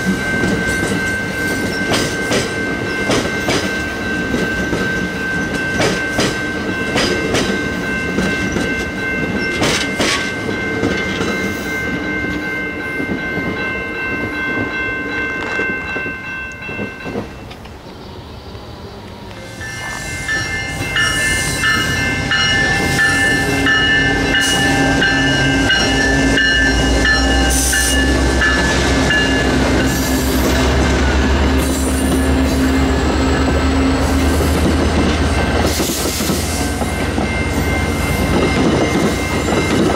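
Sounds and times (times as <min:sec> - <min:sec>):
train wheels clicking over rail joints: 0:00.0 - 0:11.6, 0:20.3 - 0:39.9
crossing signal bell ringing: 0:00.0 - 0:18.3, 0:19.2 - 0:39.9
steady ringing tones: 0:00.0 - 0:34.2, 0:36.4 - 0:39.9
deep train engine rumble: 0:00.0 - 0:39.9.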